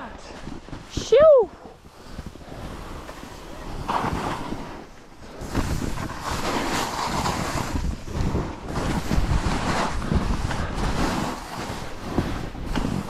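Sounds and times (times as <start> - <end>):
wind buffeting microphone: 0.0 - 13.0
skis scraping through snow: 0.2 - 13.0.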